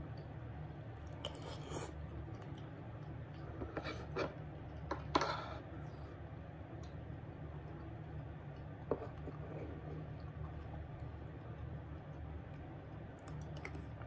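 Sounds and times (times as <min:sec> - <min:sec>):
steady low hum: 0:00.0 - 0:14.0
soft chewing: 0:00.1 - 0:14.0
spoon scraping wooden bowl: 0:03.5 - 0:04.4.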